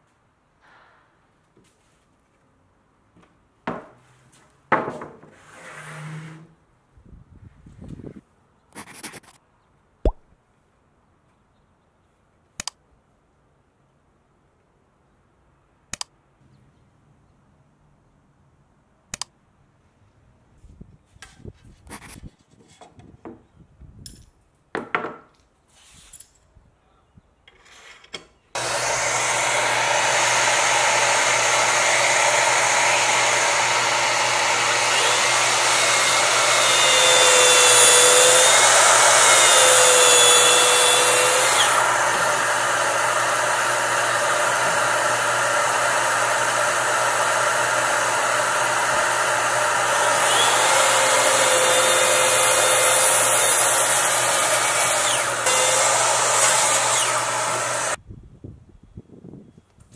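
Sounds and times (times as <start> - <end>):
track saw cutting plywood: 28.6 - 58.0.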